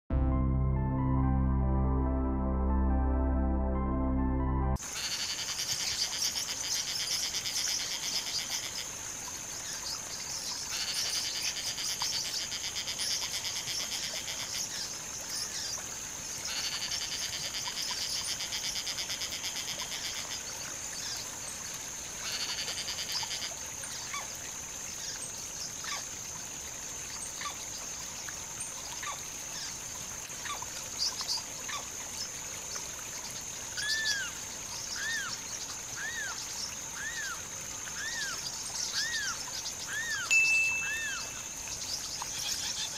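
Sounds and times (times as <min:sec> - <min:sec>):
short bird chirps: 0:40.1 - 0:41.4.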